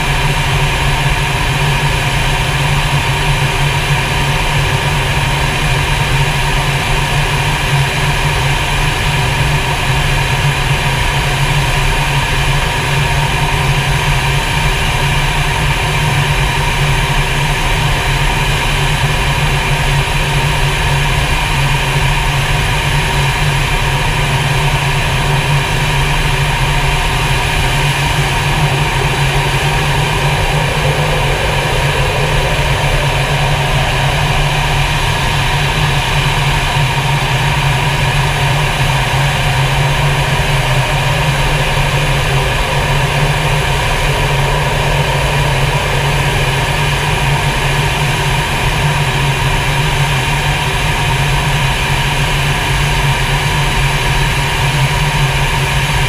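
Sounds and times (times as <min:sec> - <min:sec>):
steady whining tones: 0:00.0 - 0:56.0
fighter jet cockpit noise: 0:25.2 - 0:48.4.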